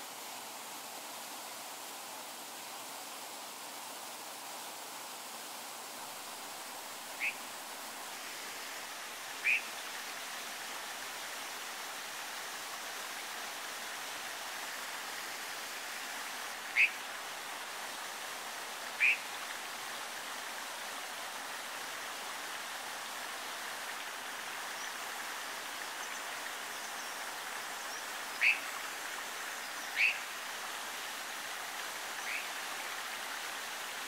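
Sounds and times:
stream running over stones: 0:00.0 - 0:34.0
sharp bird calls: 0:09.4 - 0:09.7, 0:19.0 - 0:19.2, 0:28.4 - 0:28.7, 0:30.0 - 0:30.2.

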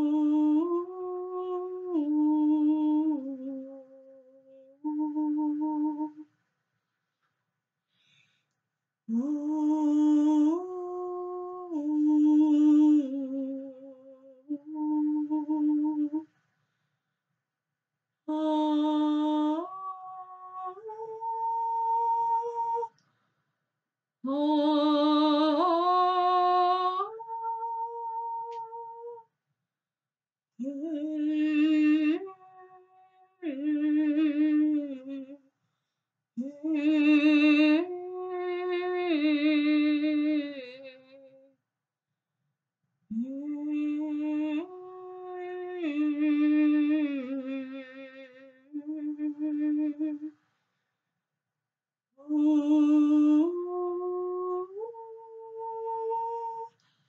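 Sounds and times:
woman singing wordless notes: 0:00.0 - 0:06.2, 0:09.1 - 0:16.3, 0:18.3 - 0:23.0, 0:24.3 - 0:29.2, 0:30.6 - 0:35.4, 0:36.4 - 0:41.4, 0:43.1 - 0:50.3, 0:52.2 - 0:56.7.

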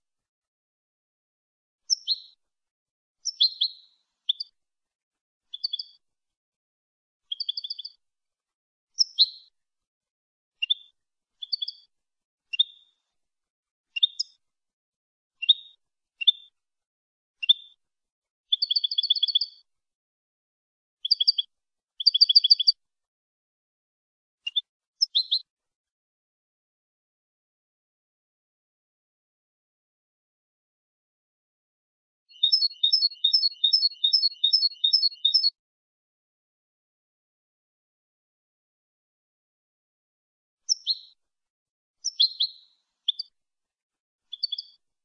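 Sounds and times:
goldfinch singing: 0:32.3 - 0:35.5, 0:42.0 - 0:43.3, 0:44.3 - 0:44.8.

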